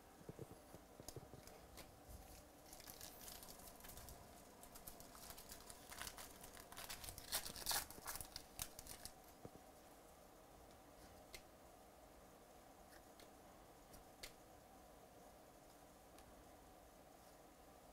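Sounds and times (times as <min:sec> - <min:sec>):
foil wrapper tearing and crinkling: 0:02.7 - 0:09.2.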